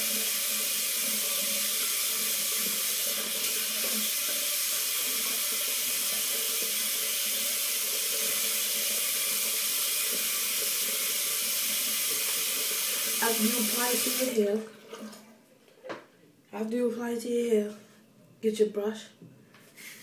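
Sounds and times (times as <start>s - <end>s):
water running from a tap: 0.0s - 15.0s.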